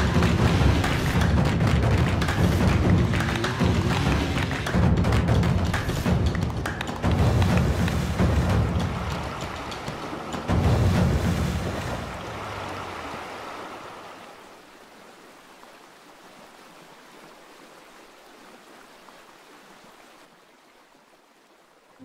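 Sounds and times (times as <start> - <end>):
water splashing from motorcycle: 5.5 - 14.6.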